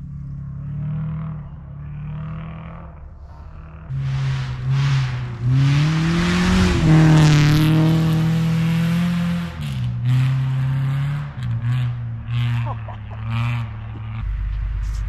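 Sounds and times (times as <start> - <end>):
rally car engine revving: 0.0 - 15.0
tyres hissing through snow: 3.9 - 7.4.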